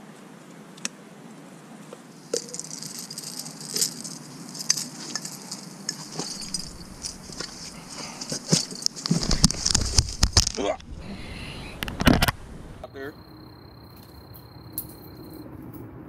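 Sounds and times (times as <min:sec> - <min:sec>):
light rattling and clicking: 0:02.3 - 0:10.6.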